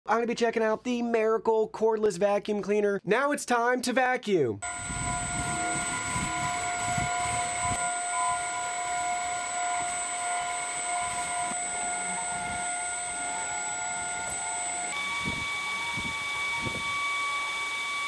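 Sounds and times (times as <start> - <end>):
stick vacuum running: 4.6 - 18.0.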